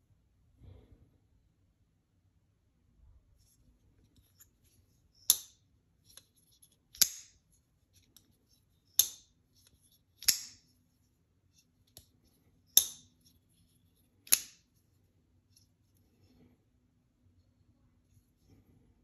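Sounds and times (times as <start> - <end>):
folding knife blade clicking: 6.9 - 7.4, 8.9 - 9.3, 10.2 - 10.6, 12.7 - 13.1, 14.2 - 14.7.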